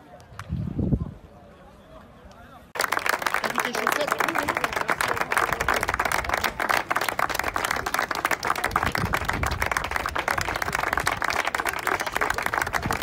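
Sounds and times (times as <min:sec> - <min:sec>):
people clapping: 0:02.8 - 0:13.0.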